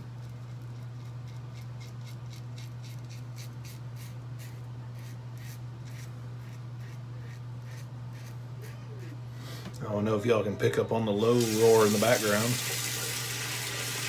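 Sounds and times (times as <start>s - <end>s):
air conditioner roar: 0.0s - 14.0s
razor scraping through stubble: 0.2s - 9.3s.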